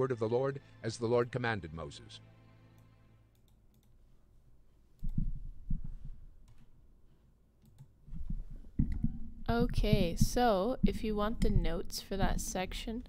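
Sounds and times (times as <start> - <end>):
computer mouse clicks: 2.8 - 4.0, 7.6 - 9.2
low thumps: 5.0 - 6.3, 8.1 - 12.9.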